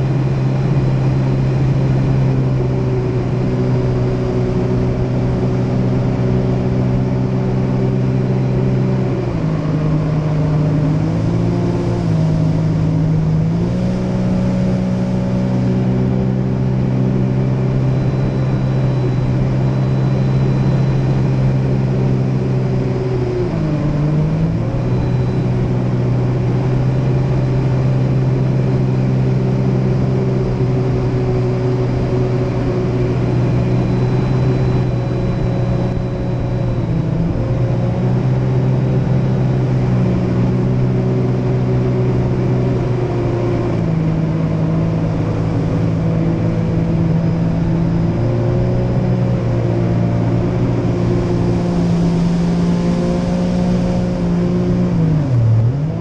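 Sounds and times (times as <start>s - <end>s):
jet ski engine running: 0.0s - 56.0s.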